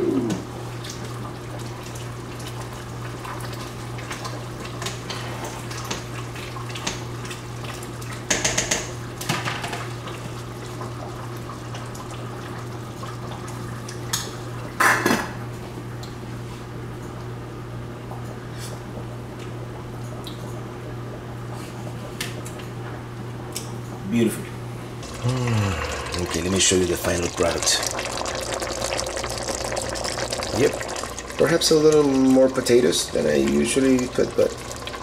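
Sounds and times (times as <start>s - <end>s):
steady low hum: 23.9s - 35.0s.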